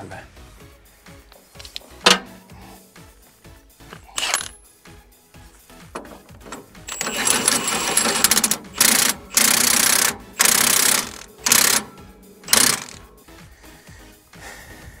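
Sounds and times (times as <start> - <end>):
ratchet wrench clicking: 1.4 - 2.5, 4.0 - 4.6, 6.0 - 13.2.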